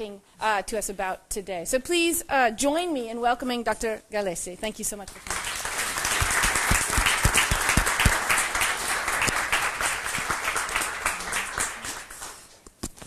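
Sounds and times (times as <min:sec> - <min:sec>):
audience applauding: 0:05.2 - 0:12.6.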